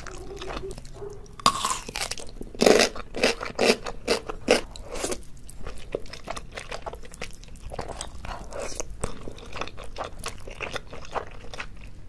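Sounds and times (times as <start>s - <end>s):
loud crunching chewing: 0.0s - 12.0s
crunchy bite into pickled radish: 1.4s - 5.2s.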